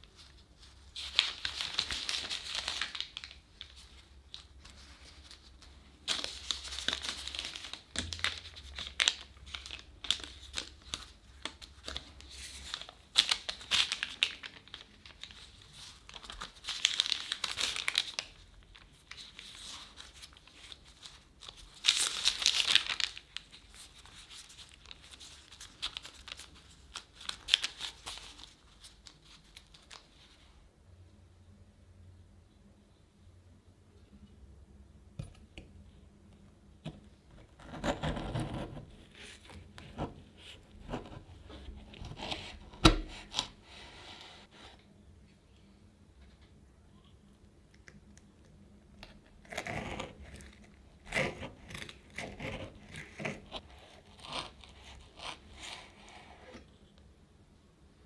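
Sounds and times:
plastic gloves crinkling: 0.0s - 30.6s.

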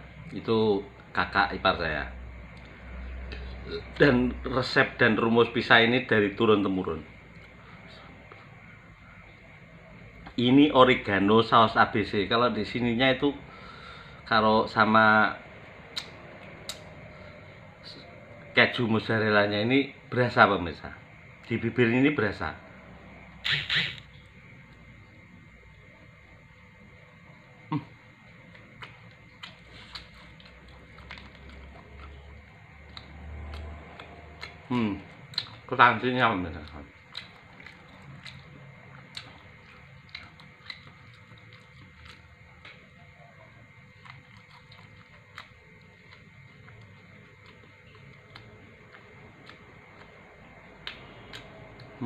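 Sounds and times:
faint mouth smacks and clicks: 15.9s - 16.9s, 50.8s - 52.0s
person chewing pizza: 27.7s - 52.0s.

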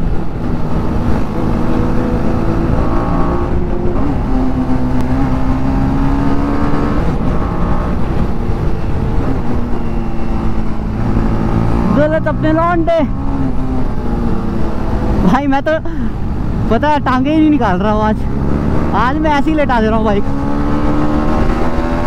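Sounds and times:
wind rush on microphone: 0.0s - 15.3s
motorcycle engine at high revs: 0.0s - 22.0s.

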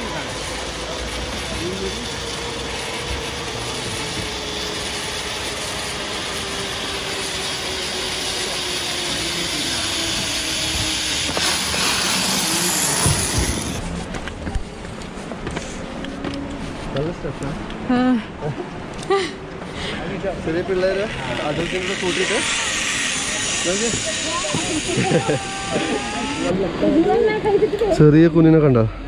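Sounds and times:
zip-line pulley whirring on cable: 0.0s - 14.0s, 20.5s - 27.4s.

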